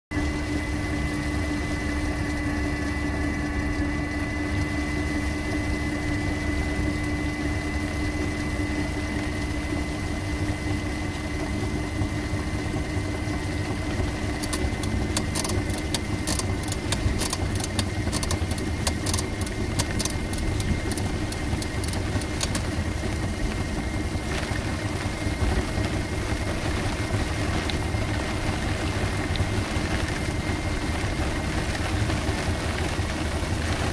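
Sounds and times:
constant whine: 0:00.1 - 0:33.9
vehicle cabin ride rumble: 0:11.2 - 0:33.9
sharp irregular ticks: 0:14.3 - 0:22.7.

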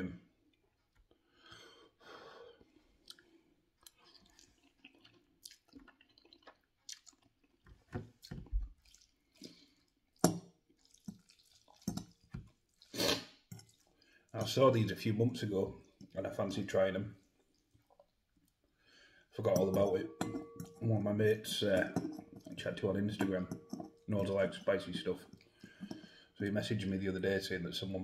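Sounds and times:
person slurping noodles: 0:12.8 - 0:13.9.

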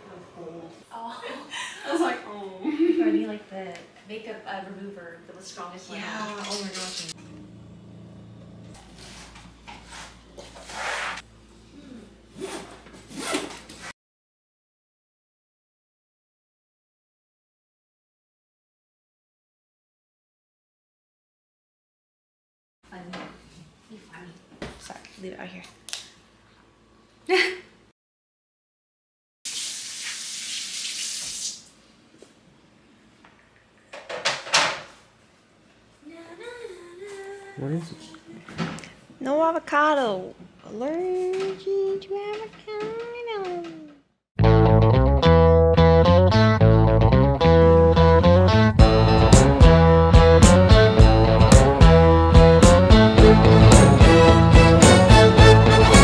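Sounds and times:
low hum: 0:07.1 - 0:09.5
water gushing into kettle: 0:29.5 - 0:31.6
kitchen faucet running: 0:29.5 - 0:31.7.

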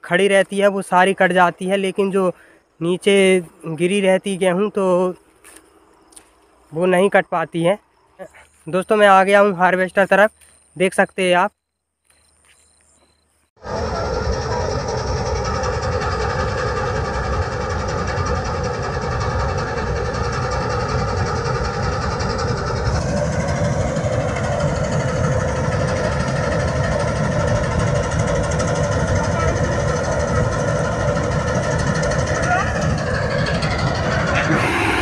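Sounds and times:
combine harvester machinery drone: 0:13.6 - 0:35.0.

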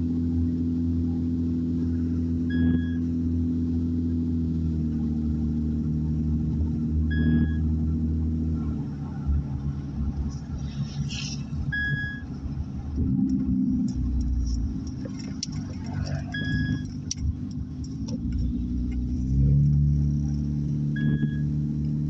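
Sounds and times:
car engine and road noise: 0:00.0 - 0:22.0
short high beeps: 0:02.5 - 0:03.0, 0:07.1 - 0:07.6, 0:11.7 - 0:12.2, 0:16.3 - 0:16.9, 0:21.0 - 0:21.5.

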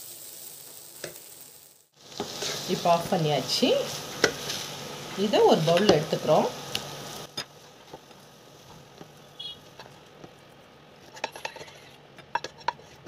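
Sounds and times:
wooden spatula scraping a pan: 0:02.1 - 0:03.1, 0:11.0 - 0:13.0.

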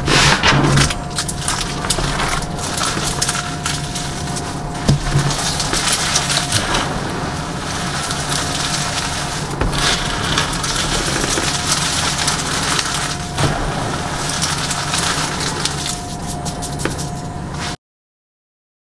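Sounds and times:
hands crushing chalk: 0:00.1 - 0:17.3.

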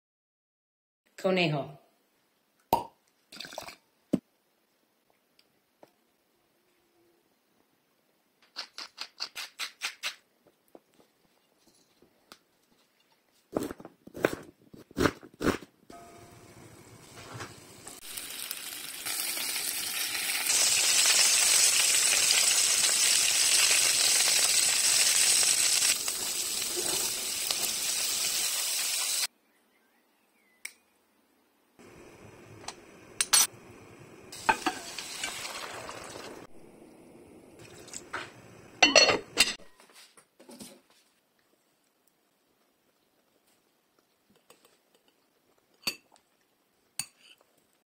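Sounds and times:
meat sizzling in oil: 0:16.0 - 0:29.3, 0:31.8 - 0:36.5.

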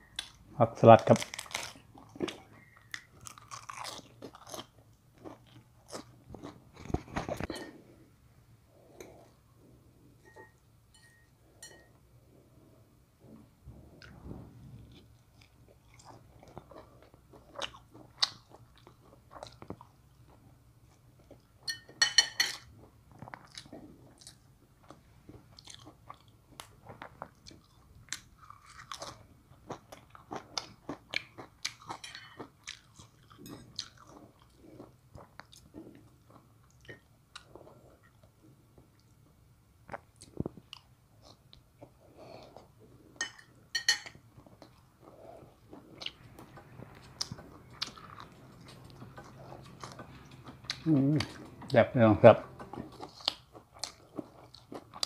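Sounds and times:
man chewing food: 0:01.3 - 0:08.0, 0:08.7 - 0:21.8, 0:22.6 - 0:51.8, 0:52.5 - 0:55.0.

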